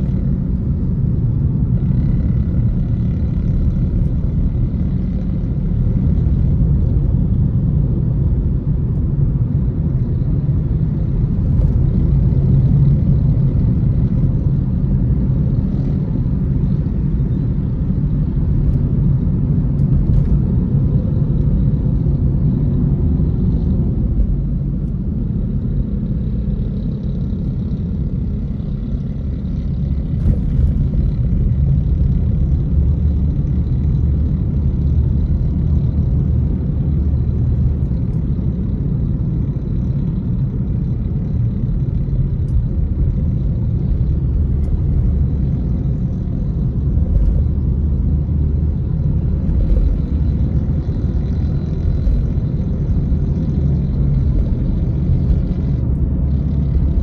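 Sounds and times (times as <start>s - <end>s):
car cabin road rumble: 0.0s - 57.0s.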